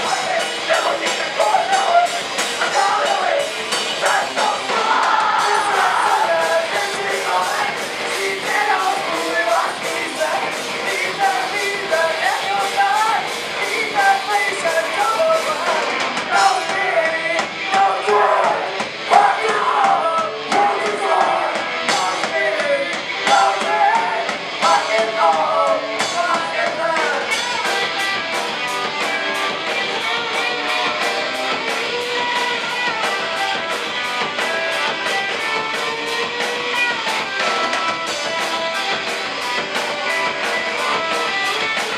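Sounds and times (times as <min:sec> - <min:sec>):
person singing: 0:00.0 - 0:27.4
punk band playing live: 0:00.0 - 0:41.9.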